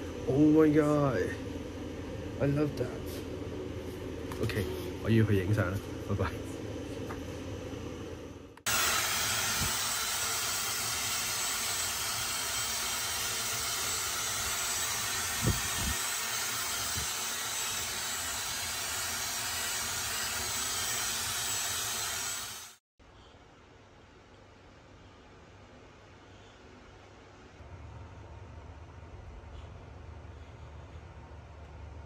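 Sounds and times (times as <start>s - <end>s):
loud rushing hiss: 8.7s - 22.8s.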